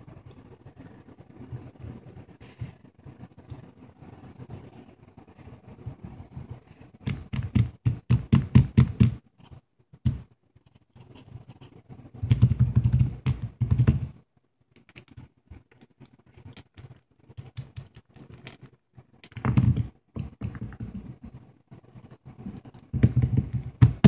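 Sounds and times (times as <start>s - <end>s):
fingertips tapping on touchscreen: 6.4s - 24.0s.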